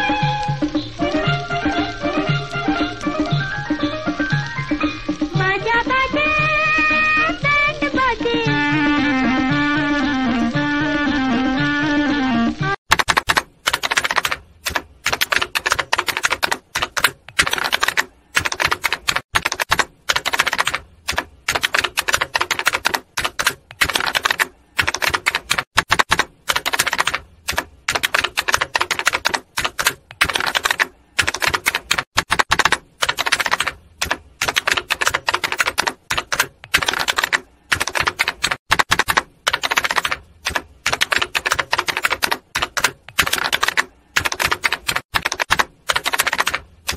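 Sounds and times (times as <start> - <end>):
typewriter key clatter: 12.9 - 46.9.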